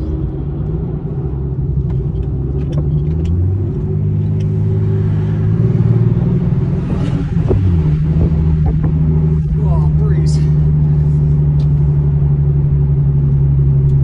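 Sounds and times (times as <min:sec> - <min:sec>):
car engine revving: 0:00.0 - 0:14.0.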